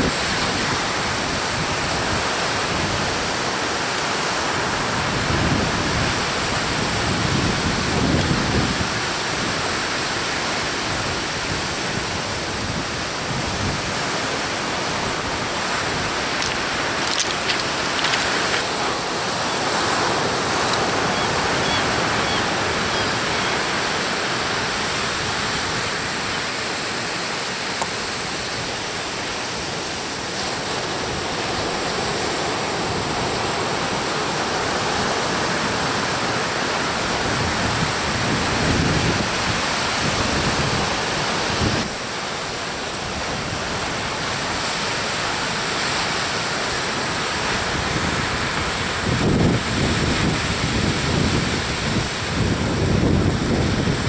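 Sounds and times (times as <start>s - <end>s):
heavy surf on cobble beach: 0.0s - 54.0s
wind buffeting microphone: 4.6s - 10.1s, 29.7s - 42.0s, 47.4s - 54.0s.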